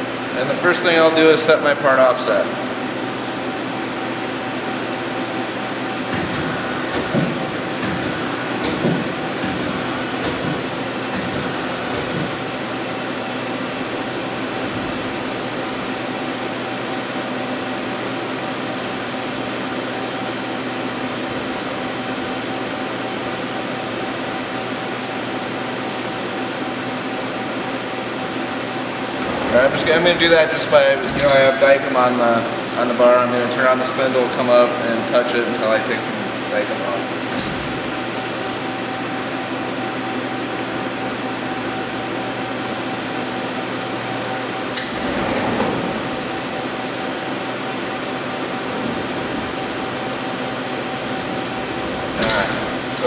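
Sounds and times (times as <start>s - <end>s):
machinery humming: 0.0s - 53.0s.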